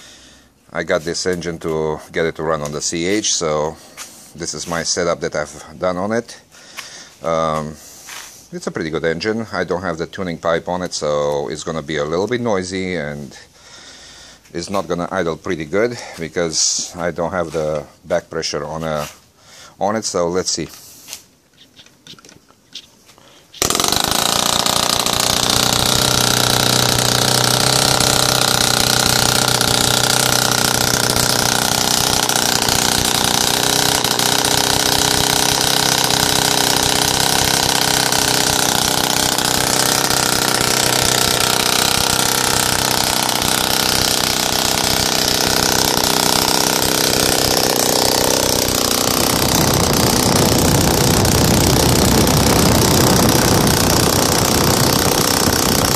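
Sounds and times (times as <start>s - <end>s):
model aircraft engine running: 23.6s - 55.9s.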